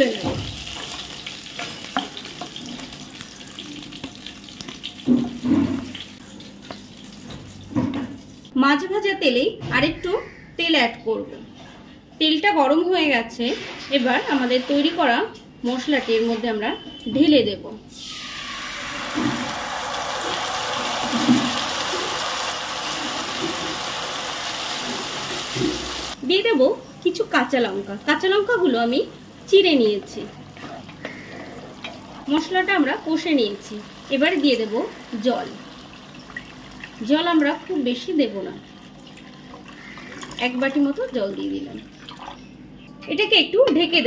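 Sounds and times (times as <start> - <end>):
fish frying in sizzling oil: 0.0 - 7.7, 18.0 - 26.2, 31.6 - 37.7
paste sizzling in hot oil: 17.9 - 26.2.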